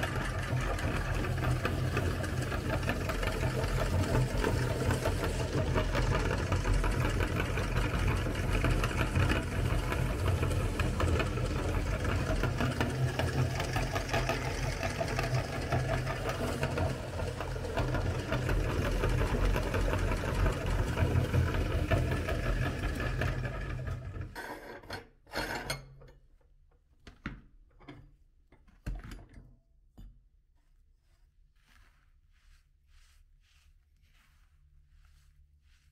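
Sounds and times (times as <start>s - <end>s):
meat grinder whirring and crunching: 0.0s - 24.4s
hands rustling and tapping crumbs: 30.6s - 35.9s.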